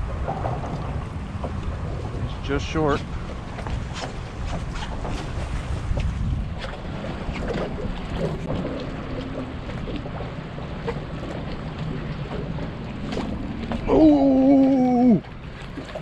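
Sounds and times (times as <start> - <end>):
water lapping against hull: 0.0 - 16.0
wind buffeting microphone: 0.0 - 16.0.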